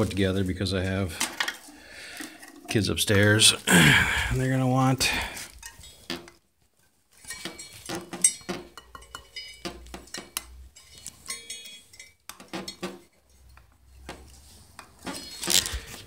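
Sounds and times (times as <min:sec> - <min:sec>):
metal spokes clinking: 0:05.1 - 0:06.4, 0:07.1 - 0:15.6.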